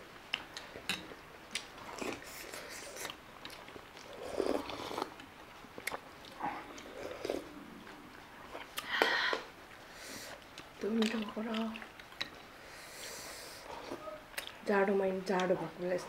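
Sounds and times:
chewing and biting food: 0:00.3 - 0:08.9, 0:09.7 - 0:12.6.

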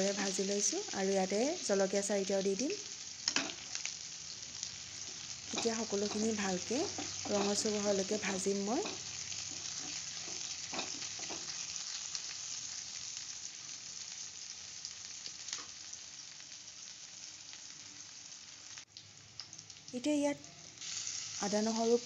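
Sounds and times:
onions sizzling in hot oil: 0:00.0 - 0:22.0
spatula scraping a pan: 0:05.5 - 0:11.7.

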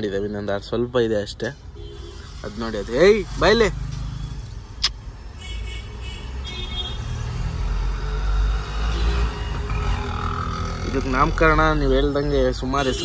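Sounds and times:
traffic rumble: 0:00.0 - 0:13.0
sharp click: 0:04.8 - 0:05.0.

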